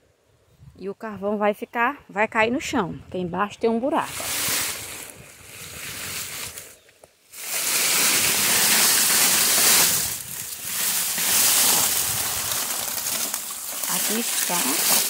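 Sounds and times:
charcoal shifting and spilling: 0:04.1 - 0:15.0
steel drum dragged over charcoal: 0:07.4 - 0:15.0.

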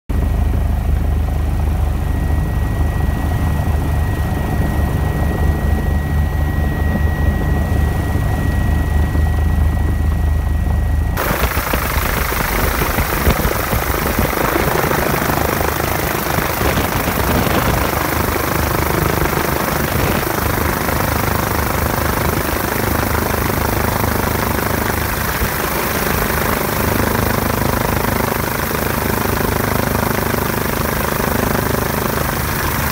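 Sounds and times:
helicopter rotor and engine drone: 0:00.1 - 0:32.9
rushing rotor wash and wind: 0:11.1 - 0:32.9.

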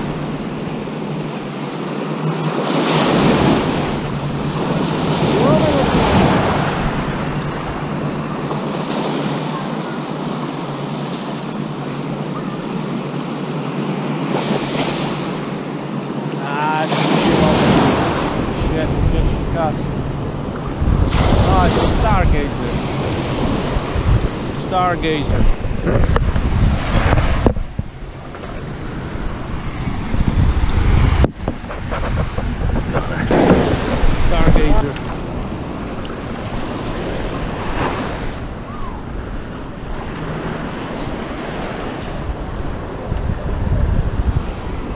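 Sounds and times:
waves washing up a beach: 0:00.0 - 0:44.9
wind buffeting microphone: 0:16.9 - 0:44.9.

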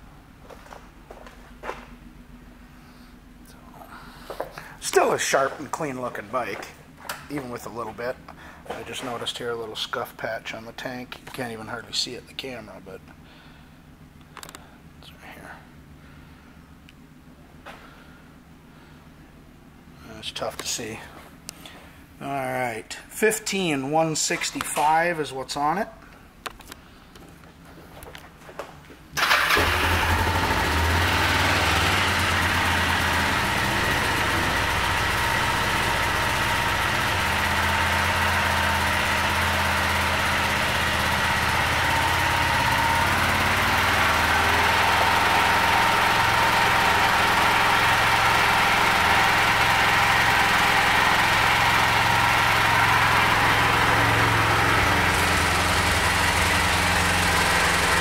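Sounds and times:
motorcycle engine starting and idling: 0:03.9 - 0:14.8, 0:29.0 - 0:58.0.

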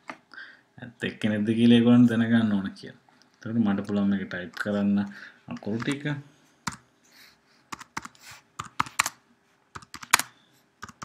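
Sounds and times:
typing on keyboard: 0:07.7 - 0:09.2, 0:09.8 - 0:11.0.

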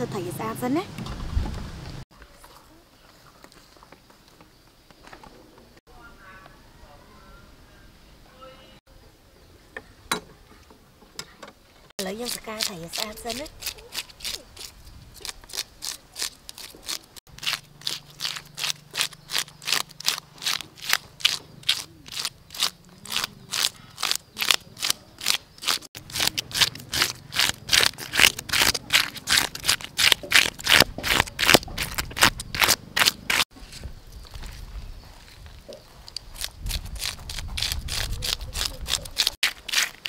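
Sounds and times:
fish scaler scraping scales: 0:12.0 - 0:33.5, 0:36.1 - 0:40.0.

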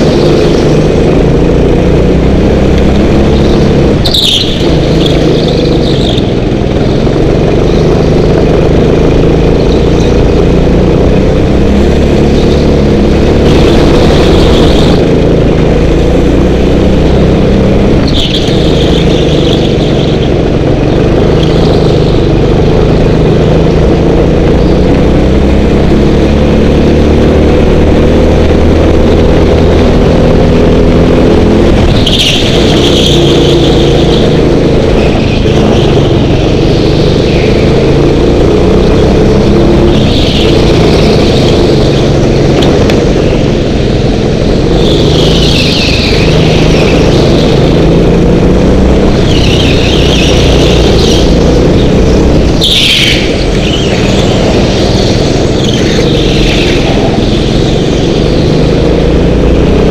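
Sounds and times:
go-kart engine revving: 0:00.0 - 0:59.9
tyre squeal: 0:03.1 - 0:06.4, 0:17.9 - 0:22.4, 0:31.8 - 0:38.3, 0:39.1 - 0:42.5, 0:44.6 - 0:48.0, 0:49.0 - 0:59.1.

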